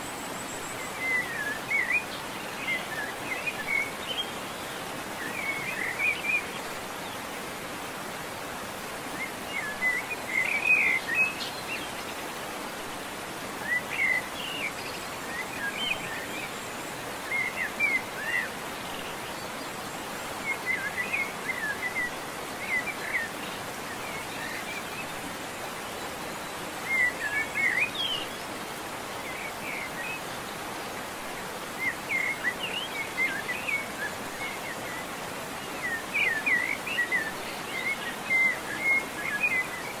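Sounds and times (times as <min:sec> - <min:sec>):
steady outdoor hiss: 0:00.0 - 0:40.0
songbird chirping: 0:09.1 - 0:40.0.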